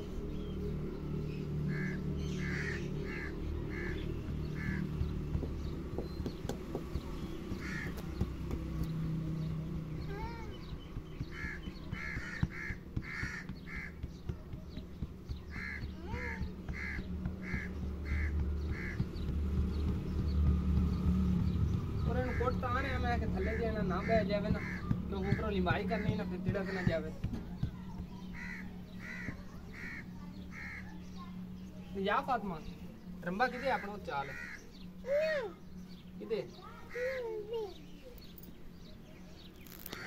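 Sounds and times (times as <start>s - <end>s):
crows cawing: 1.6s - 5.7s, 7.5s - 8.2s, 11.1s - 14.2s, 15.3s - 19.2s, 23.4s - 27.2s, 28.3s - 31.1s, 33.4s - 35.2s, 36.9s - 37.4s.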